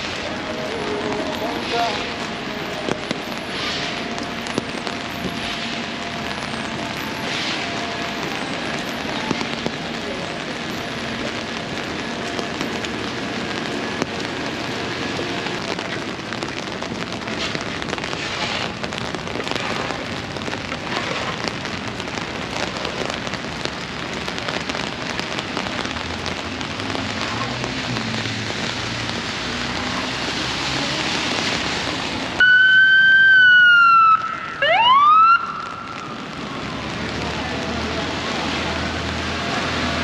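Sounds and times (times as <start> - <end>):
steady rain: 0.0 - 40.0
wet street noise: 0.0 - 40.0
police siren wailing: 32.4 - 36.4.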